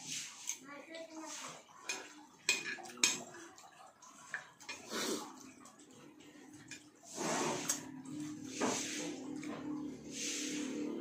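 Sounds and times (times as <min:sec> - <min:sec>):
soft eating noises: 0:00.0 - 0:11.0
cutlery clinking against plates: 0:01.8 - 0:03.6.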